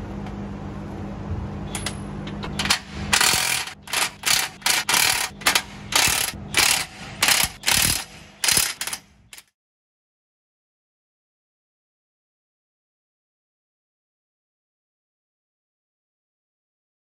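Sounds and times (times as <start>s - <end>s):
impact wrench hammering: 1.8s - 9.5s.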